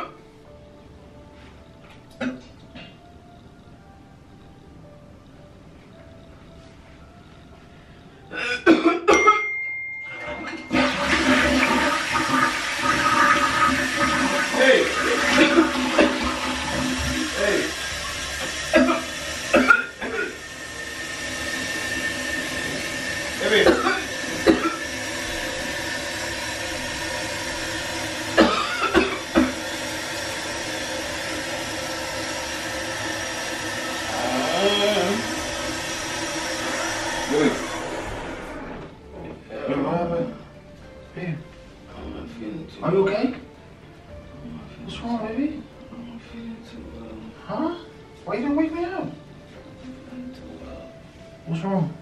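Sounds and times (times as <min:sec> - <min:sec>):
toilet flushing: 0:10.0 - 0:39.0
steady hum: 0:15.4 - 0:39.0.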